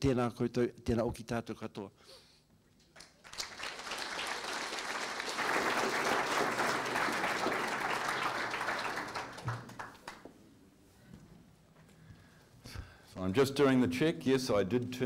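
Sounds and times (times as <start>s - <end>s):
audience applauding: 3.0s - 10.3s.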